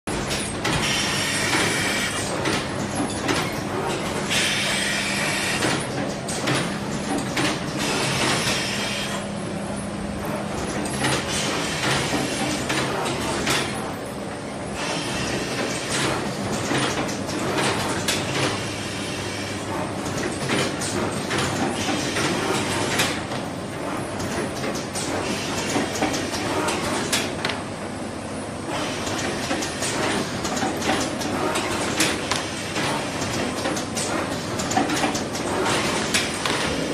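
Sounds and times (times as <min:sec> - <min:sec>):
steady motor hum: 0:00.1 - 0:20.1, 0:22.2 - 0:36.9
uneven mechanical clatter: 0:28.7 - 0:36.9.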